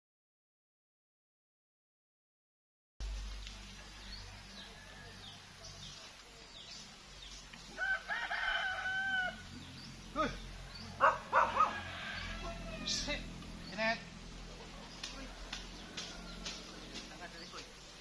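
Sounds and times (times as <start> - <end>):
rooster crowing: 3.8 - 5.6, 7.8 - 9.6, 11.0 - 13.2, 14.9 - 16.9.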